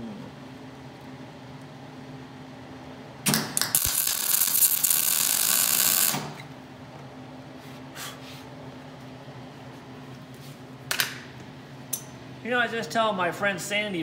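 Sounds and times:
welder arc crackling and hissing: 3.3 - 6.5.

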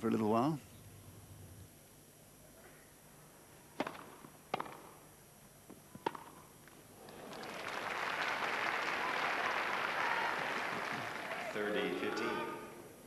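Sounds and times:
tennis ball struck by rackets: 3.8 - 5.0, 6.0 - 6.4
crowd applause: 7.0 - 11.6.

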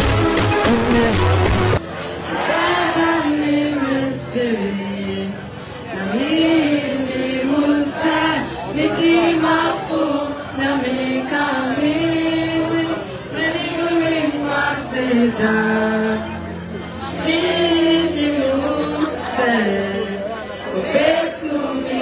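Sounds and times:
amplified music: 0.0 - 1.8
crowd singing: 0.0 - 22.0.

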